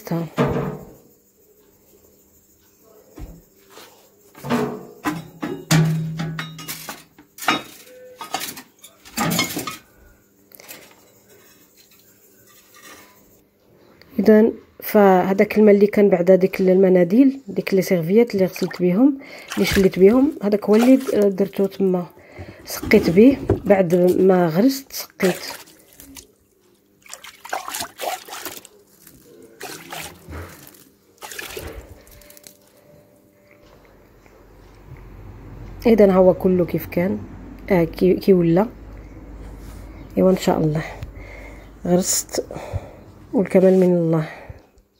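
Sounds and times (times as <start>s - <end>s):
water splashing onto soil: 18.5s - 21.7s, 25.2s - 26.3s, 27.0s - 32.4s.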